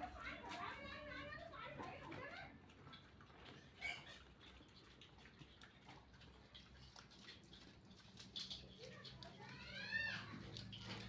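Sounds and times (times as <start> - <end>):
pigs eating clicking: 0.0 - 11.0.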